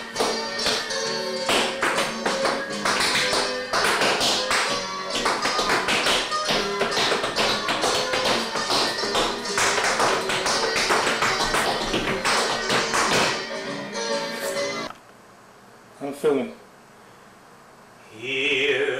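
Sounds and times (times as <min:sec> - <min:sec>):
recorded music: 0:00.0 - 0:15.0
tap shoes striking: 0:01.5 - 0:13.4.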